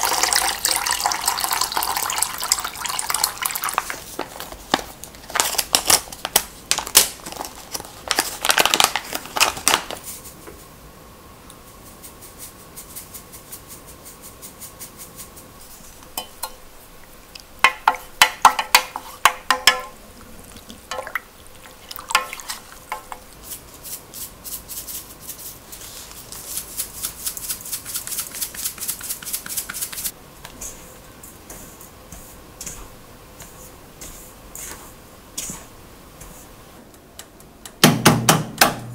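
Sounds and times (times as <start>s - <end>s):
packet crinkling: 3.3s - 10.2s.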